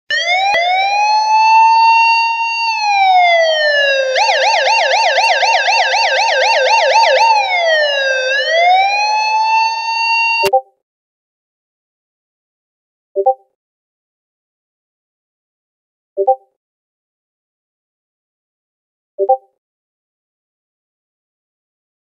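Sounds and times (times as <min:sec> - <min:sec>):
police car siren: 0:00.1 - 0:10.5.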